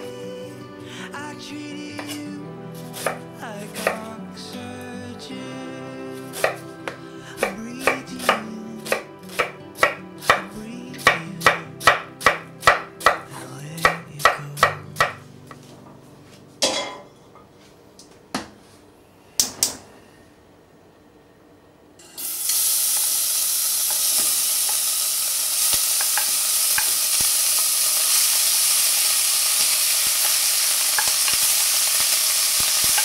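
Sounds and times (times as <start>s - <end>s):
soft background music: 0.0s - 17.2s
knife chopping on wooden board: 11.4s - 13.2s.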